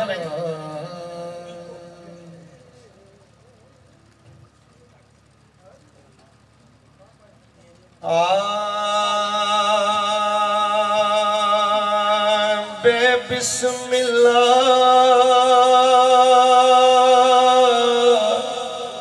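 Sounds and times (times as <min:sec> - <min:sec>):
man chanting: 0:00.0 - 0:02.8, 0:08.0 - 0:19.0.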